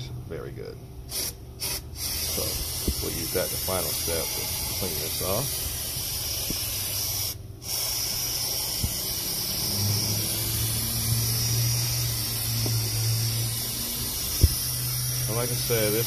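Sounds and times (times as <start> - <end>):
low steady hum: 0.0 - 16.0
aerosol spray hissing: 1.1 - 16.0.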